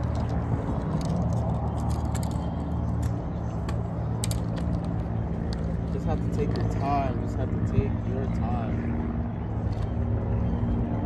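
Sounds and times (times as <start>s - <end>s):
low engine hum: 0.0s - 11.0s.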